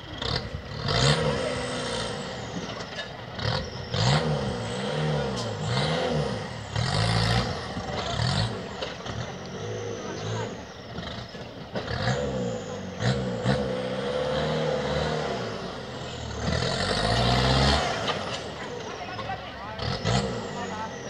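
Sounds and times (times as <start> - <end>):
buggy engine revving hard: 0.0 - 21.0.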